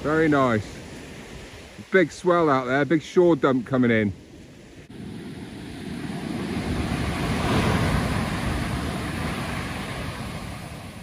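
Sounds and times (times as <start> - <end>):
heavy surf waves crashing: 0.0 - 11.0.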